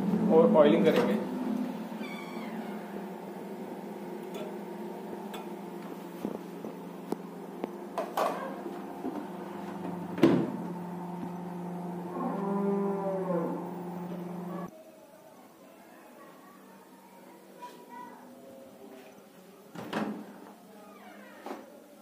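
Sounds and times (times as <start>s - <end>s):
electrical hum: 0.0s - 14.7s.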